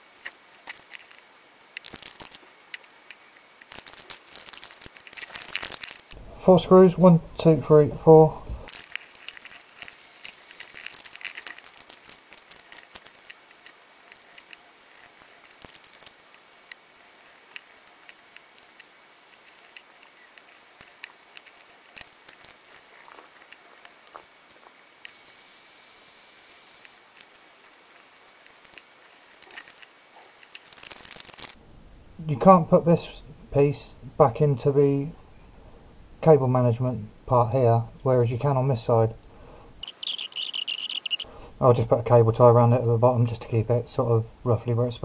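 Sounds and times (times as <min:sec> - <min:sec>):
small parts clicking and rustling: 0:00.0 - 0:06.2, 0:06.8 - 0:25.2, 0:26.8 - 0:31.6, 0:39.8 - 0:41.3
high hiss with faint whine: 0:00.0 - 0:45.0.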